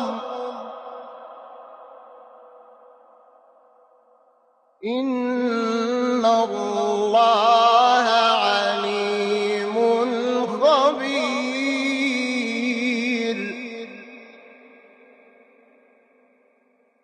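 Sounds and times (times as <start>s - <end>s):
man chanting: 0.0s - 2.6s, 4.8s - 15.3s.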